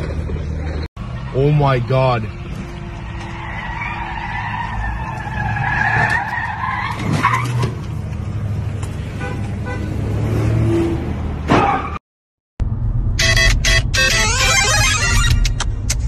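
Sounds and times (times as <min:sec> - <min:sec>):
tyres squealing: 0:01.2 - 0:08.0
vehicle crash: 0:03.3 - 0:08.0.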